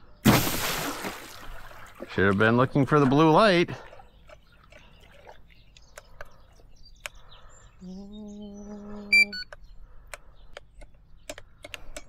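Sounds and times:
bird chirps: 3.8 - 12.0.

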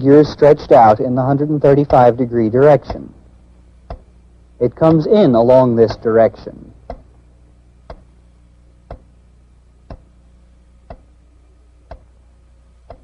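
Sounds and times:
steady low hum: 0.0 - 13.0
sharp ticks: 10.8 - 11.1.

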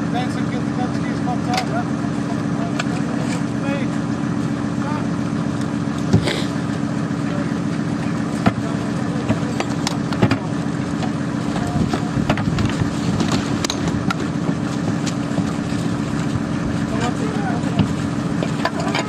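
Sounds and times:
vehicle engine idling: 0.0 - 19.0
metal knocks and clanks: 8.4 - 15.7, 17.7 - 19.0.

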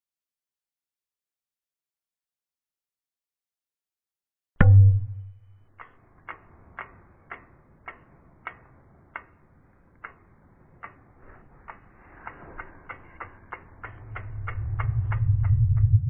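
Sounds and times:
ticking clicks: 4.6 - 16.0
faint swell: 11.2 - 16.0.

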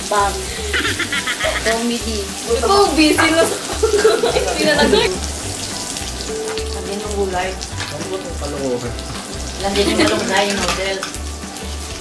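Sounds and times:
meat sizzling on grill pan: 0.0 - 12.0
background music with beat: 0.1 - 12.0
person speaking: 4.3 - 5.2, 9.6 - 10.6.

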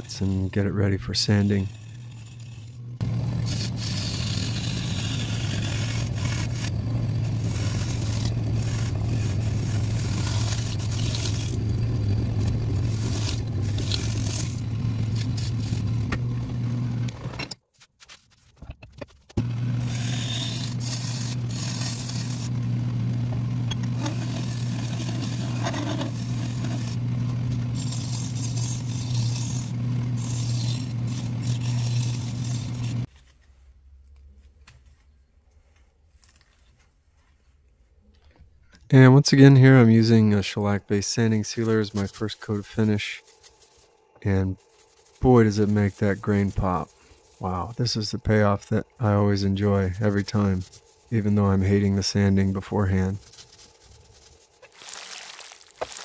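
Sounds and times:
gouge scraping wood: 0.0 - 17.1, 17.8 - 33.1, 41.2 - 54.7
wood lathe motor humming: 1.3 - 17.3, 19.4 - 33.1, 42.5 - 54.5.

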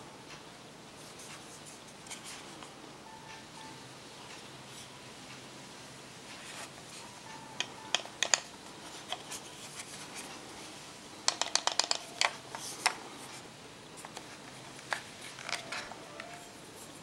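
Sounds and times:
screwdriver kit clicks and taps: 11.3 - 13.0.

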